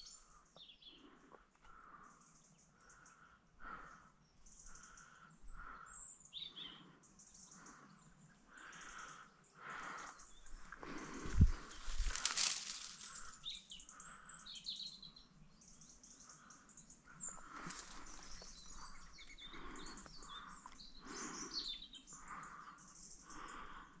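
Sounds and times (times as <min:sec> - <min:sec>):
small birds chirping: 0:00.0 - 0:24.0.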